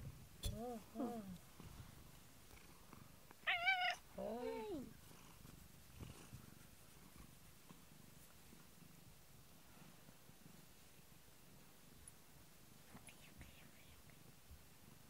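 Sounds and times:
cat purring: 0.0 - 15.0
cat meowing: 3.4 - 4.9.

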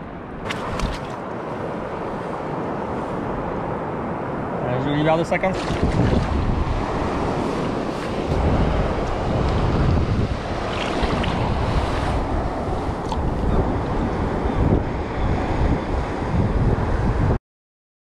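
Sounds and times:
wind buffeting microphone: 0.0 - 17.4
sea water washing: 0.4 - 3.4, 5.2 - 14.5.

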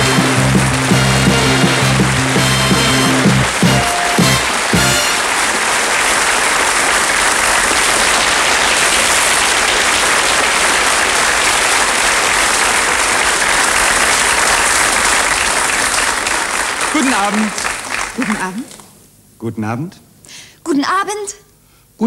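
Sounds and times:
audience applauding: 0.0 - 18.9.

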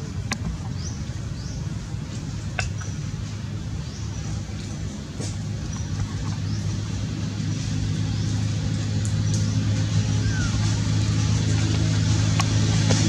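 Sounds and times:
engine running low hum: 0.0 - 13.0.

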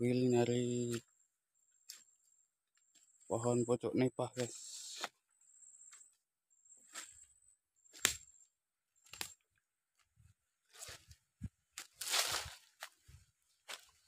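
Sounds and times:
footsteps crunching through dry leaves: 9.9 - 14.0.

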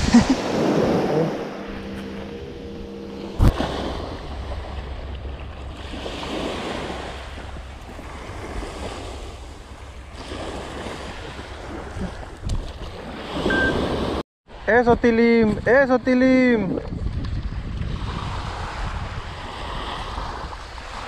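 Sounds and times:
wind on microphone: 0.0 - 14.2, 16.5 - 21.0
small waves breaking on beach: 5.6 - 14.7, 17.8 - 21.0.

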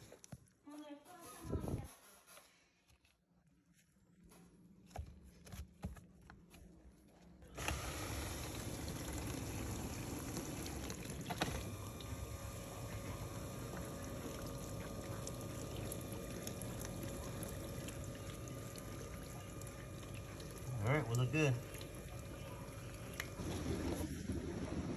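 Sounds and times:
faint pump hum: 0.0 - 24.9
dishwasher water spraying: 7.6 - 24.9.

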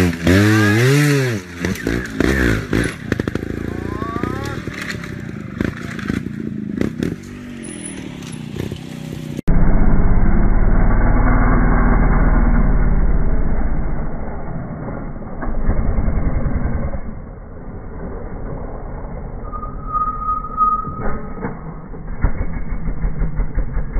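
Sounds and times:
motorcycle engine revving: 0.0 - 17.4, 21.8 - 23.9
heavy low rumble: 9.4 - 23.9.

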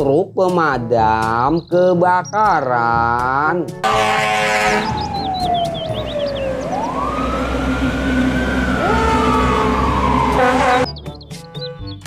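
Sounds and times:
fire engine sirens wailing: 3.8 - 10.9
low engine rumble: 4.7 - 10.4.

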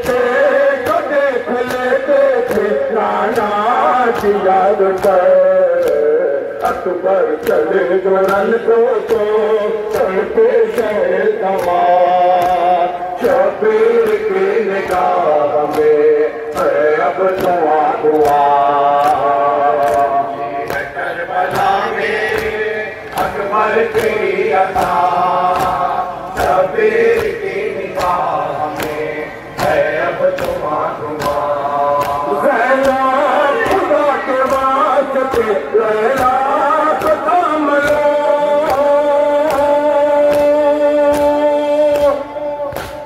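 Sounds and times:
men chanting a lament: 0.0 - 43.0
hands slapping chest: 18.2 - 19.2, 21.5 - 24.2, 24.8 - 29.0, 41.1 - 43.0.

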